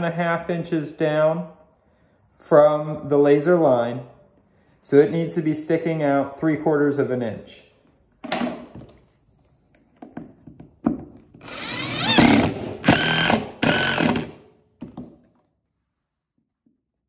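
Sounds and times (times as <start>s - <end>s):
impact driver driving screw: 11.4s - 14.4s.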